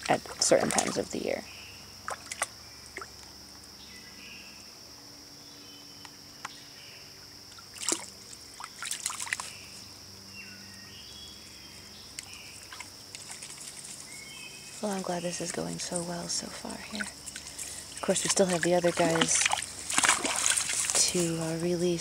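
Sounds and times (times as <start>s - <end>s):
paws scrabbling in water and mud: 0.0s - 1.2s, 7.6s - 9.8s, 12.2s - 22.0s
small splashes in water: 0.0s - 1.2s, 2.0s - 3.2s, 7.5s - 9.6s, 12.6s - 14.0s, 15.8s - 21.5s.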